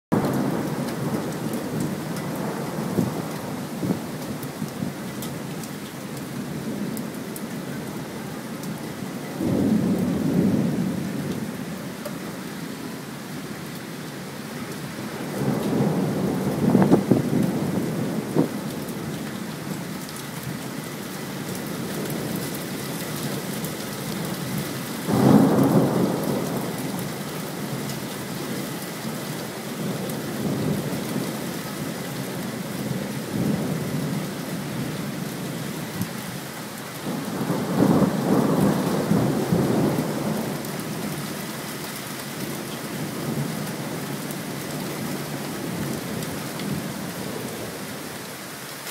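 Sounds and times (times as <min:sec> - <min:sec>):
steady rain: 0:00.1 - 0:48.9
thunder rolling: 0:15.2 - 0:18.6.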